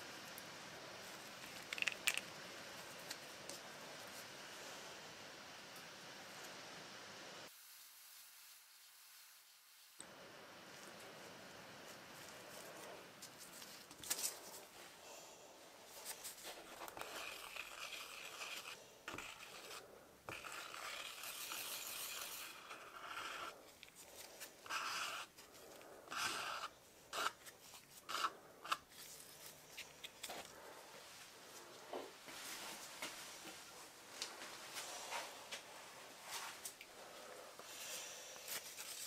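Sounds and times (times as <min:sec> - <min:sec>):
stick scraping in mixing cup: 0:16.5 - 0:23.9, 0:24.6 - 0:28.9.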